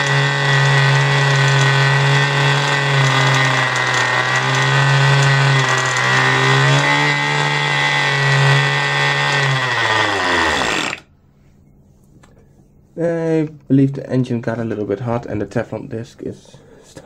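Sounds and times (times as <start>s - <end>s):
model engine running: 0.0s - 11.0s.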